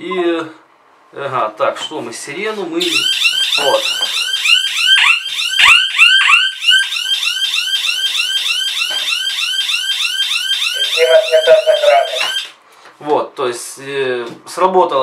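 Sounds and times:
electronic alarm siren wailing: 0:02.8 - 0:12.6
low steady alarm tone: 0:02.8 - 0:12.6.

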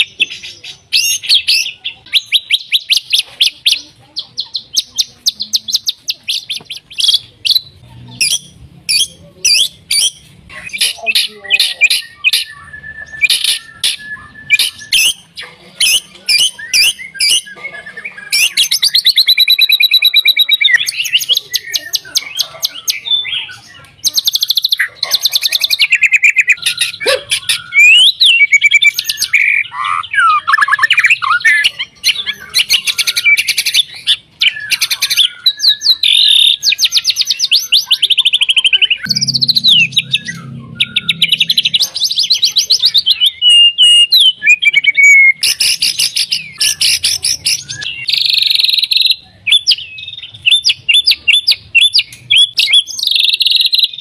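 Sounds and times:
songbird singing varied song: 0:00.0 - 0:54.0.

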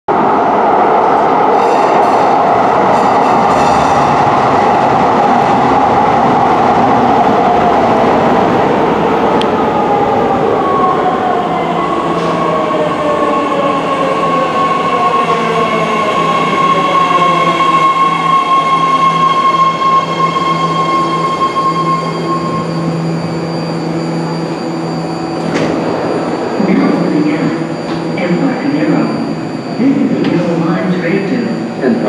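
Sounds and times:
steady high tone: 0:10.7 - 0:32.0.

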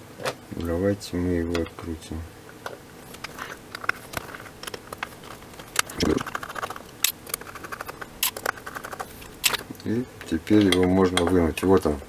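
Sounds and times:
small metal clicks and scrapes: 0:03.1 - 0:09.6.

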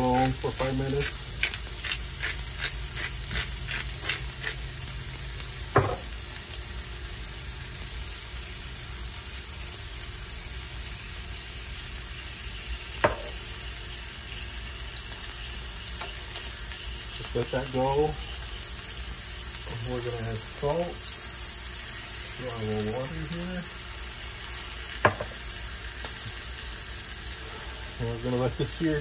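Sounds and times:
chicken sizzling in pan: 0:00.0 - 0:29.0.

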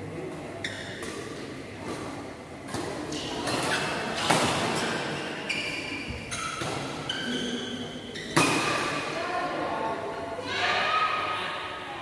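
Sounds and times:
shoes squeaking on court: 0:00.6 - 0:02.0, 0:03.1 - 0:08.8
racket hitting shuttlecock: 0:00.8 - 0:05.1.

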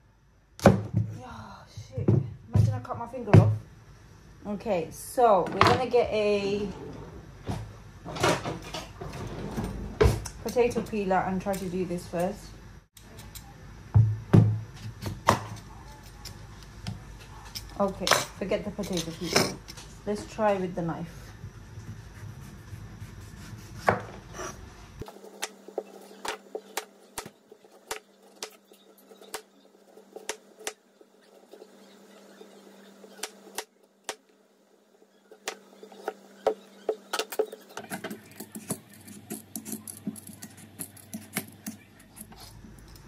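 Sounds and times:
knife scraping squash skin: 0:37.5 - 0:43.0.

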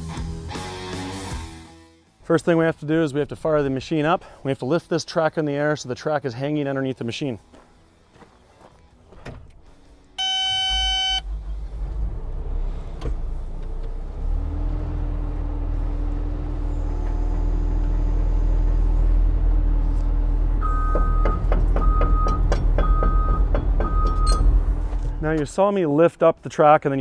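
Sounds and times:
long electronic beep: 0:10.2 - 0:11.2
travel alarm beeping: 0:10.2 - 0:11.2, 0:20.6 - 0:24.4
hydraulic whine: 0:10.2 - 0:11.3
excavator diesel engine running: 0:10.2 - 0:24.1.

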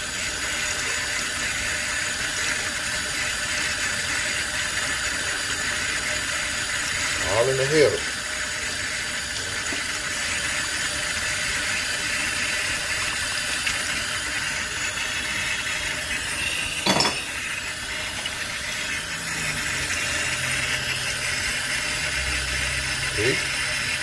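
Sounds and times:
faucet running into steel sink: 0:00.0 - 0:24.0
short metal clink: 0:16.8 - 0:17.3.

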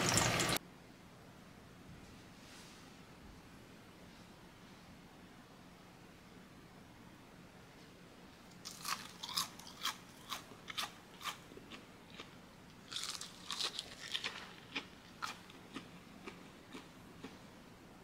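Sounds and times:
crunching fried chicken: 0:08.6 - 0:17.4.

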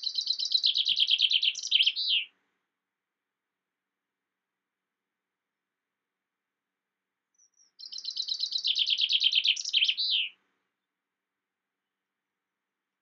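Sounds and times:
chaffinch singing: 0:00.0 - 0:02.3, 0:07.4 - 0:10.4.

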